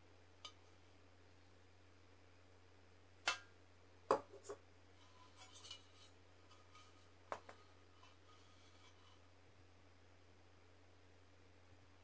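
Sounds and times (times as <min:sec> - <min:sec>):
light rustling and rubbing: 0:04.3 - 0:09.4
objects knocking: 0:06.8 - 0:07.6.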